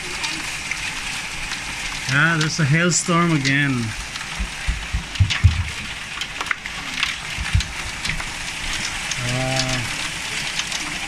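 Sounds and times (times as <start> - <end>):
hailstones ticking on wood: 0.0 - 11.0
heavy rain hiss: 0.0 - 11.0
dull thumps: 4.4 - 5.9.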